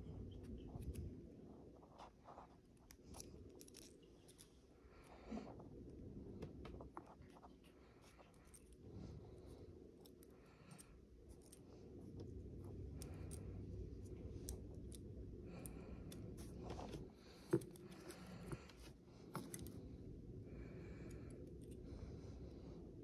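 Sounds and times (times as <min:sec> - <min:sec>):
pistol parts clicking and scraping: 0:02.8 - 0:04.6.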